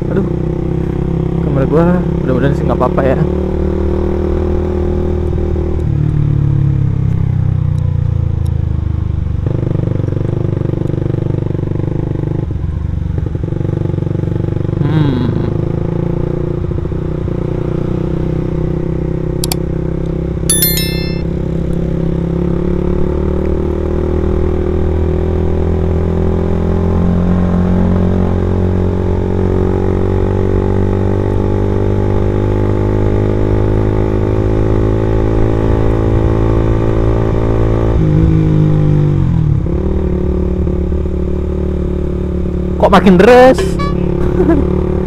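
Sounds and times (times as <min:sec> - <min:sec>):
motorcycle engine with racing exhaust: 0:00.0 - 0:45.0
high ringing chirp: 0:20.5 - 0:21.4.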